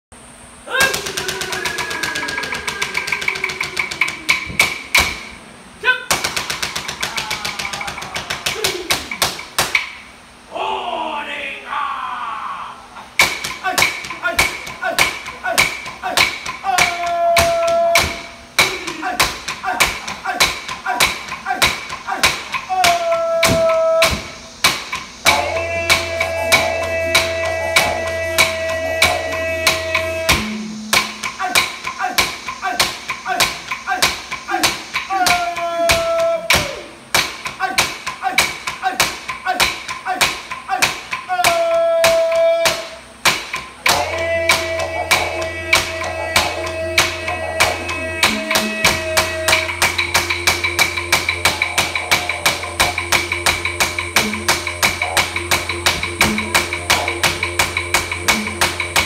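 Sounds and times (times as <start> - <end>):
person chanting: 0.7 - 4.5, 25.2 - 37.0, 37.6 - 43.0, 43.8 - 57.6
clapsticks struck in rhythm: 0.8 - 5.3, 13.2 - 59.0
low didgeridoo drone: 1.0 - 5.0, 24.2 - 31.5, 43.8 - 59.0
long held note: 25.2 - 31.4, 43.9 - 53.0.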